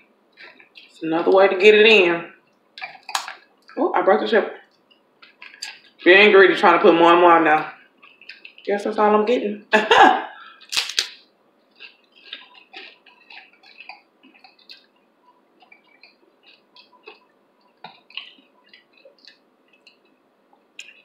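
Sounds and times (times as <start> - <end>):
chewing chip with wet mouth clicks: 0.4 - 1.0, 2.5 - 3.8, 4.6 - 6.0, 8.0 - 8.7, 10.6 - 21.0.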